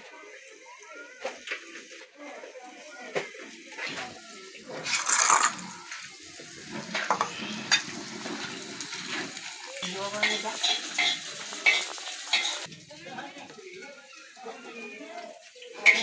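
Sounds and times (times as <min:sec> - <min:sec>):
onion sizzling in a wok: 0:00.0 - 0:16.0
metal spatula scraping a pan: 0:03.8 - 0:12.7.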